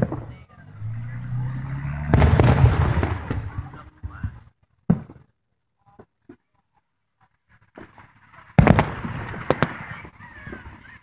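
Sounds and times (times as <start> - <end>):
fireworks booming: 0.0 - 5.3, 7.6 - 11.0
fireworks crackle: 2.0 - 5.3, 7.2 - 11.0
fireworks sharp bang: 2.0 - 5.3, 7.8 - 10.9.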